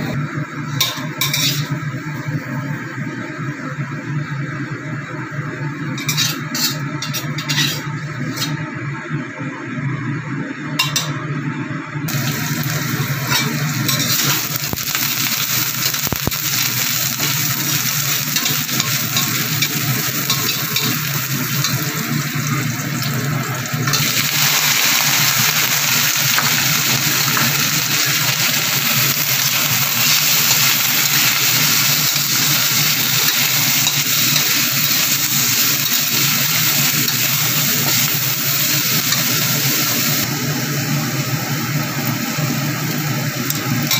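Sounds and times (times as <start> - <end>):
metal spatula stirring in wok: 0.8 - 1.8, 6.0 - 8.6, 13.3 - 14.4
vegetables sizzling in hot oil: 0.8 - 2.8, 5.8 - 8.6, 12.1 - 43.9.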